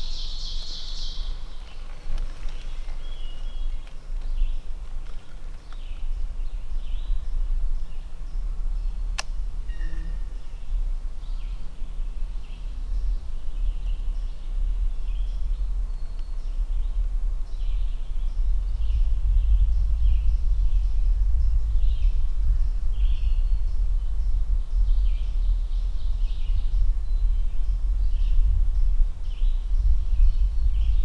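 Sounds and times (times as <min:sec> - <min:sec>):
songbirds chirping: 0:00.0 - 0:31.0
wind rumble on microphone: 0:00.0 - 0:31.0.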